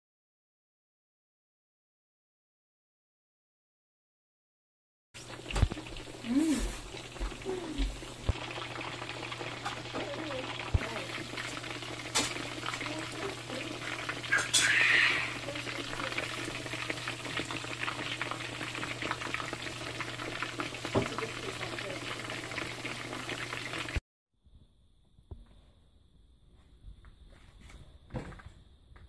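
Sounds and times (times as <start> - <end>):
hot oil sizzling in a skillet: 5.2 - 24.0.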